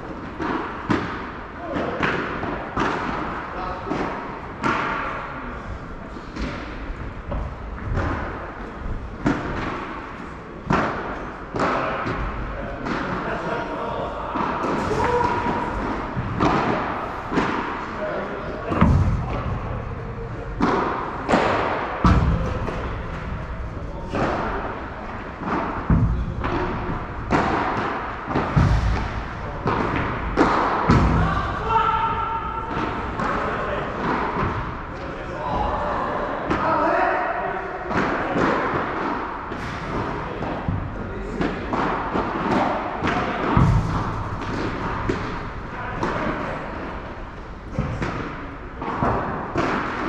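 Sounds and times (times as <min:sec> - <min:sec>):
racket striking ball: 0:00.1 - 0:05.0, 0:09.2 - 0:13.2, 0:14.3 - 0:17.9, 0:18.7 - 0:34.8, 0:37.9 - 0:50.0
padel ball hit with rackets: 0:20.6 - 0:23.3, 0:25.4 - 0:31.3, 0:41.4 - 0:46.2.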